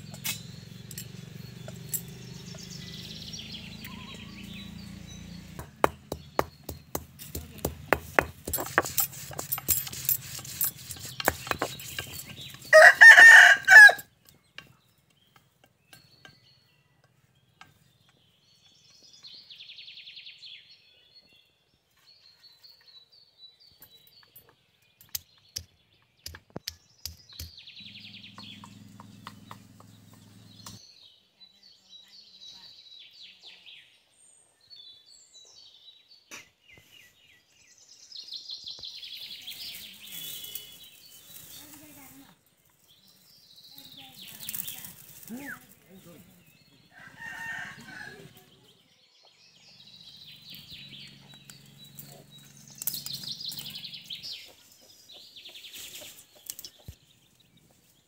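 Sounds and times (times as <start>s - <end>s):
stone knocking on stone: 5.6s - 12.2s
rooster crowing: 12.7s - 14.0s, 46.9s - 48.4s.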